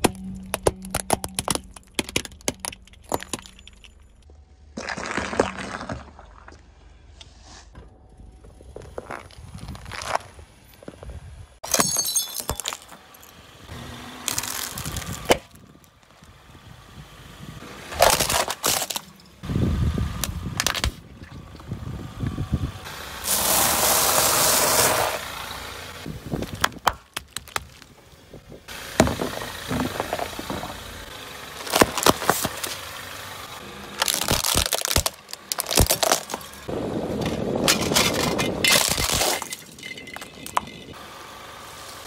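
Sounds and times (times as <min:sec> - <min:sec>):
tyre crushing objects: 0:04.8 - 0:06.5, 0:17.9 - 0:19.2, 0:31.6 - 0:32.8, 0:34.0 - 0:40.6.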